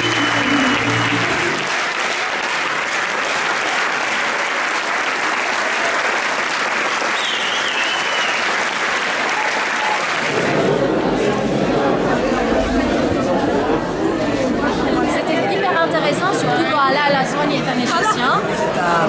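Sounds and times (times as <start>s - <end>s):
audience applauding: 0.0s - 11.3s.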